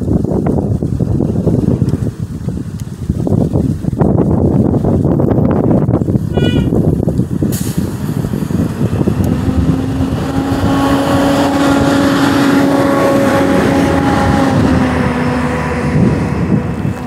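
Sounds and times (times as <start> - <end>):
constant low rumble: 0.0 - 17.0
vehicle engine humming: 0.0 - 17.0.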